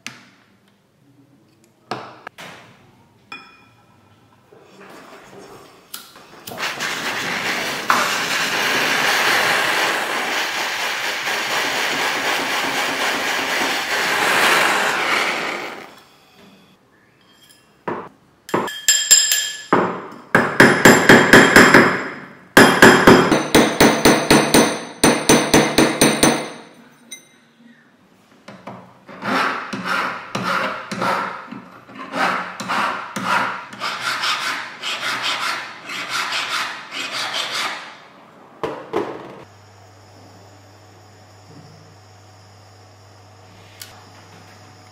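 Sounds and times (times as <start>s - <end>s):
torch hissing: 6.5s - 16.0s
hammer striking metal ring: 20.6s - 27.4s
hand file rasping: 32.0s - 37.9s.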